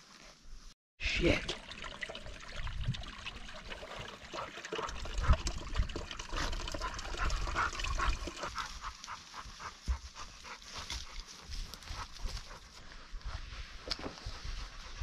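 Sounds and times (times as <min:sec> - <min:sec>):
dog panting: 0:06.6 - 0:13.4, 0:14.2 - 0:15.0.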